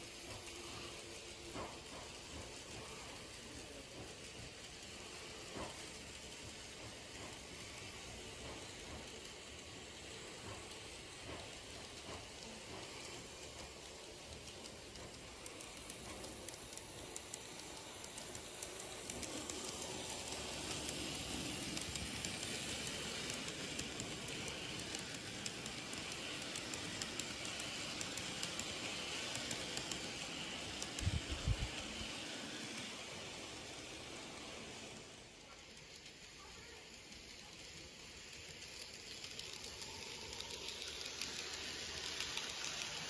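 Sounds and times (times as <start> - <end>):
model train rolling rattle: 0.0 - 43.0
rapid wheel clicking: 10.3 - 34.7, 35.7 - 43.0.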